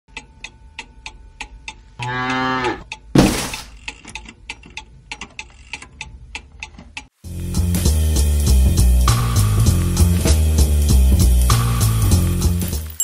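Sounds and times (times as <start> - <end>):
cow mooing: 2.0 - 2.9
cuckoo clock ticking: 3.8 - 7.2.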